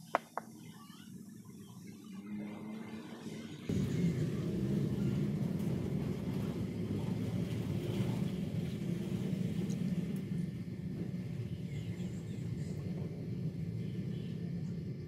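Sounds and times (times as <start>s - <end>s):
potter's wheel low rumble: 3.7s - 13.7s.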